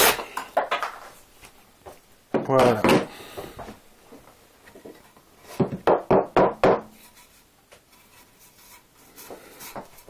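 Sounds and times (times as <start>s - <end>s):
board knocking on wooden workbench: 5.6s - 7.0s.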